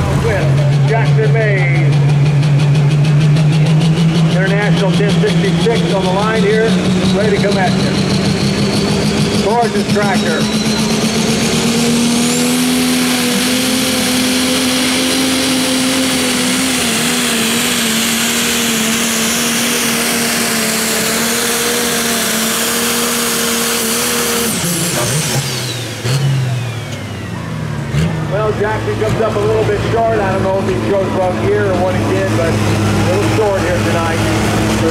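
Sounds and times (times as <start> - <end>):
diesel engine running flat out: 0.0 - 34.9
turbo whistle: 7.0 - 12.4.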